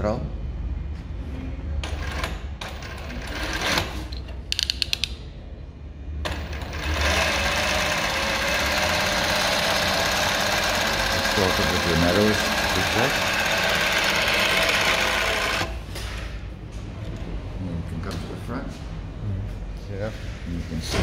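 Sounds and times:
sewing machine stitching: 0:01.8 - 0:04.1, 0:06.3 - 0:15.8.

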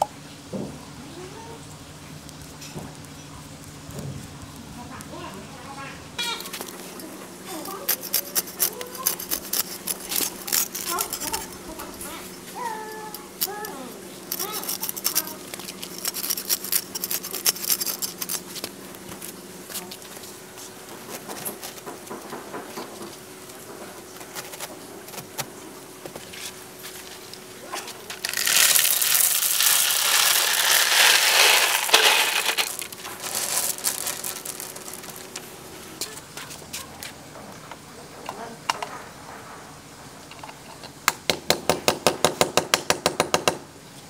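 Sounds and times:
knife rasping through plastic mat: 0:07.5 - 0:11.9, 0:13.4 - 0:19.9
pebbles pouring with rattling clatter: 0:28.1 - 0:35.5.

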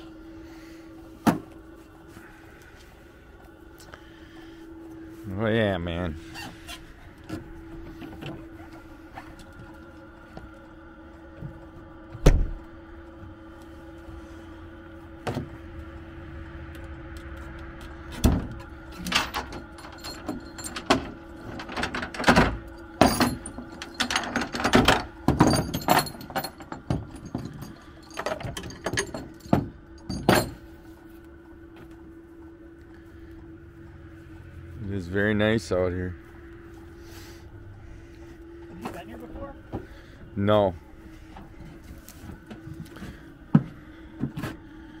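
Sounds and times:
steady hum: 0:00.0 - 0:45.0
ratchet straps clicking and clanking: 0:16.7 - 0:30.8.

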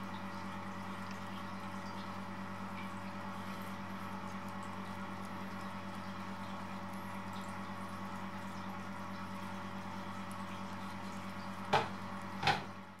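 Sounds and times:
kittens lapping and smacking: 0:00.0 - 0:12.4.

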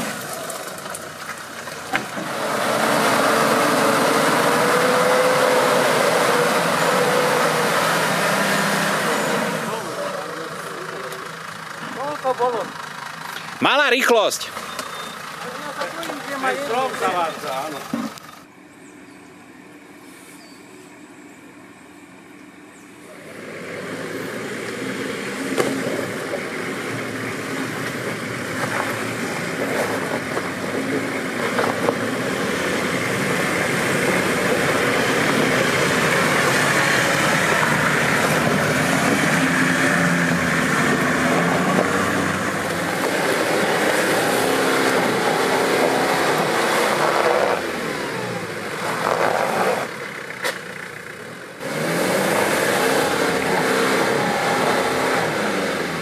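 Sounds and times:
engine revving under load: 0:02.0 - 0:11.3, 0:23.0 - 0:56.0.

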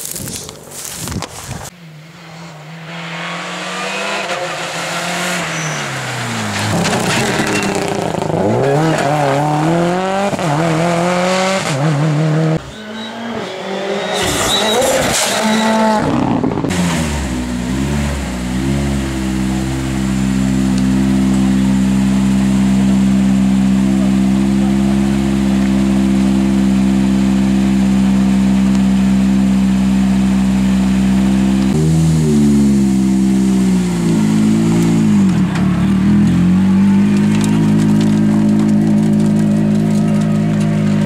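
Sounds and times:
rally car engine revving past: 0:02.1 - 0:19.6.

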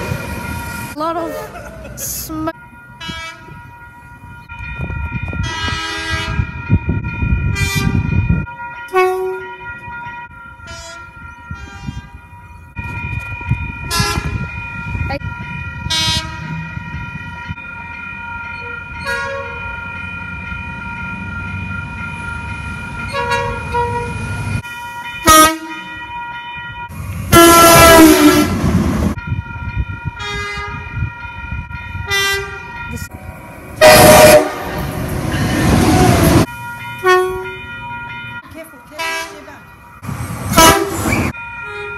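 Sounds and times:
train horn blasts: 0:03.0 - 0:03.6, 0:05.4 - 0:06.6, 0:07.5 - 0:08.2, 0:08.9 - 0:09.7, 0:10.6 - 0:12.2, 0:13.9 - 0:14.5, 0:15.9 - 0:16.6, 0:19.0 - 0:19.6, 0:23.1 - 0:24.2, 0:25.2 - 0:25.9, 0:27.3 - 0:28.6, 0:30.2 - 0:30.9, 0:32.1 - 0:32.6, 0:33.8 - 0:34.8, 0:35.4 - 0:37.6, 0:39.0 - 0:39.5, 0:40.5 - 0:41.9.

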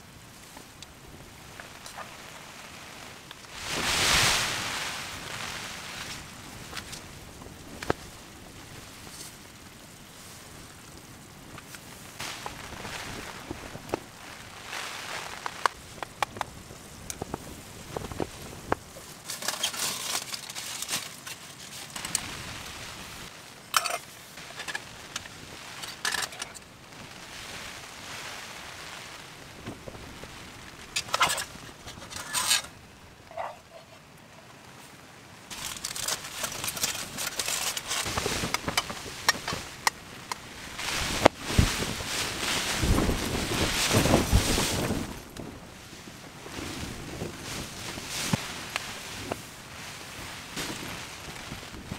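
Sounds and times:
wind noise: 0:00.0 - 0:19.3, 0:21.9 - 0:34.6, 0:35.5 - 0:51.9
crackling: 0:00.0 - 0:51.9
foil crinkling: 0:18.0 - 0:22.8, 0:30.9 - 0:32.7, 0:35.5 - 0:40.0.

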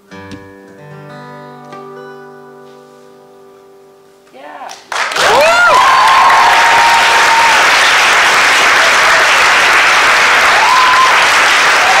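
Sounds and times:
audience applauding: 0:04.8 - 0:12.0
people cheering: 0:05.0 - 0:12.0.

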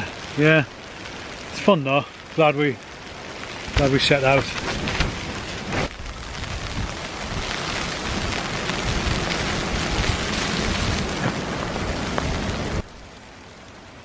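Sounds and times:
gusty wind rumble: 0:02.9 - 0:13.2.

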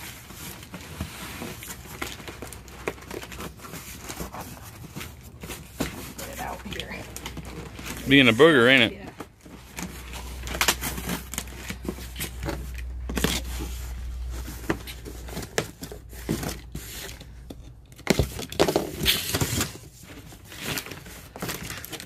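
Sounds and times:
cardboard box being torn open: 0:09.7 - 0:16.7.

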